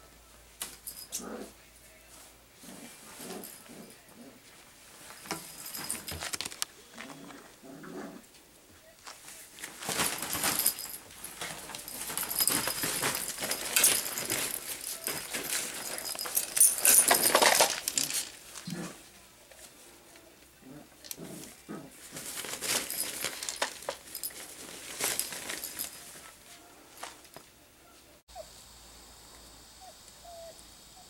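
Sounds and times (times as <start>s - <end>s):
nylon tunnel crinkling: 5.0s - 7.4s, 8.9s - 19.9s, 21.0s - 27.4s
puppy whining: 29.8s - 30.6s.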